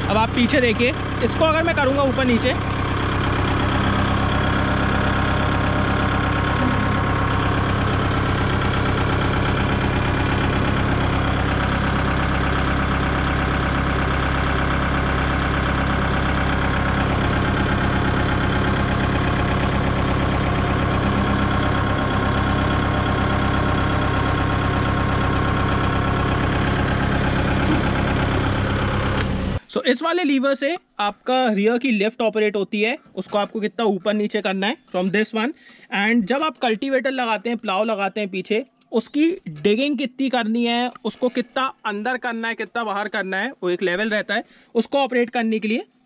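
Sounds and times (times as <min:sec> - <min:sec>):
tractor diesel engine running: 0:00.0 - 0:29.7
hydraulic lift moving: 0:01.0 - 0:29.6.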